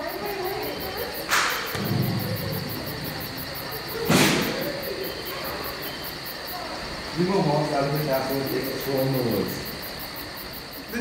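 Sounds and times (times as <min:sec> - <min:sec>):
echoing bangs: 0:01.3 - 0:05.0
low hum: 0:01.7 - 0:04.1.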